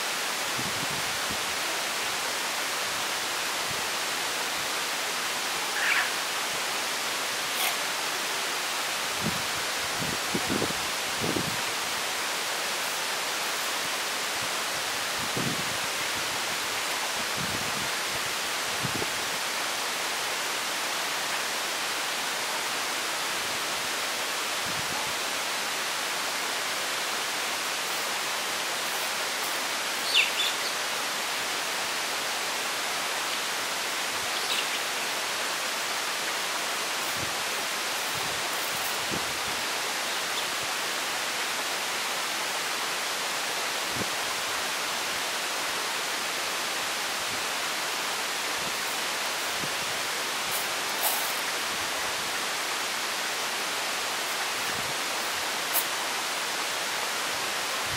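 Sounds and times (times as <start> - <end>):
steady hiss: 0.0 - 57.9.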